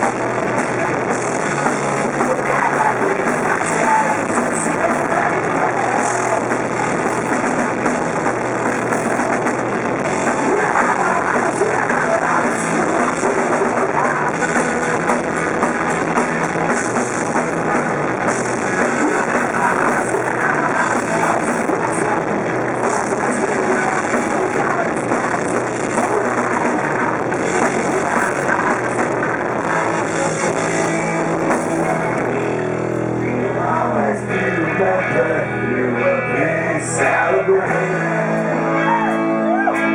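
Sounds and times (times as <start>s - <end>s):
punk rock band playing: 0.0s - 39.9s
person singing: 2.0s - 7.8s, 8.7s - 16.3s, 18.6s - 39.9s.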